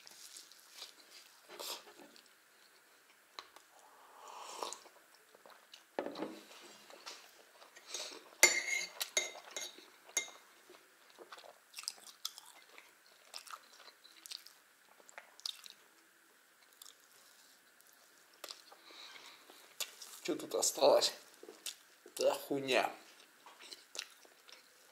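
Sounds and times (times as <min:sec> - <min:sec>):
person chewing: 0:07.2 - 0:15.8, 0:16.6 - 0:20.2, 0:21.3 - 0:21.9, 0:23.1 - 0:24.9.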